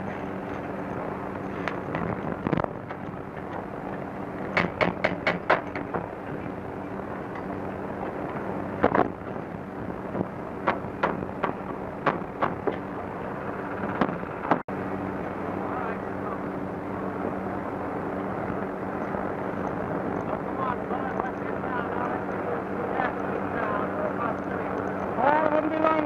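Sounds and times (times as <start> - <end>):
steady low hum: 0.0 - 26.0
hammering on steel: 4.5 - 6.0.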